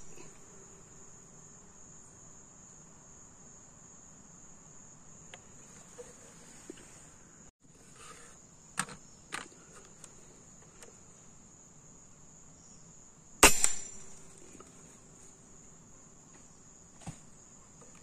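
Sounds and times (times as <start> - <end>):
air rifle shot: 13.4 - 14.2.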